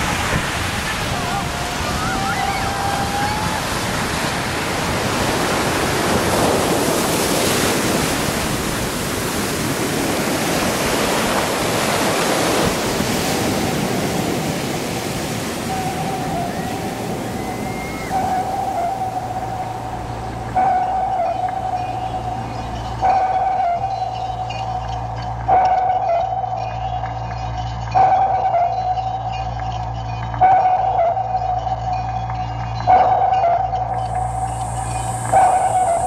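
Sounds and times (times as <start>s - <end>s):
waves breaking on sand: 0.0s - 26.1s
thin high tone: 15.4s - 36.0s
low hum: 15.7s - 36.0s.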